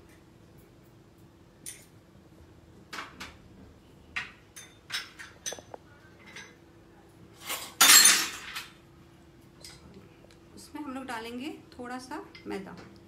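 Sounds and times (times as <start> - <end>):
faint steady hum: 0.0 - 13.0
kitchen utensils scraping and clinking: 7.4 - 8.8.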